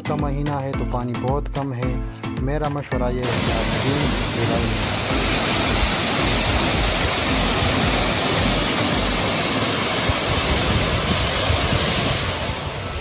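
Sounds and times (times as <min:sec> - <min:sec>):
waterfall rushing: 0:03.2 - 0:13.0.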